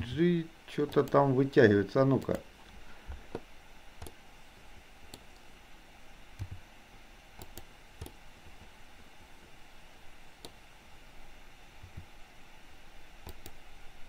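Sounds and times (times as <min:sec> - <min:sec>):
mouse and keyboard clicks: 0:07.4 - 0:08.2, 0:13.2 - 0:13.6.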